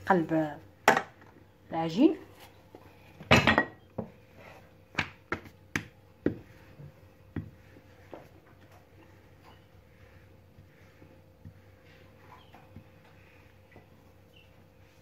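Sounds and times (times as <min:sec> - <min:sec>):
rolling pin tapping on worktop: 0:04.9 - 0:06.5.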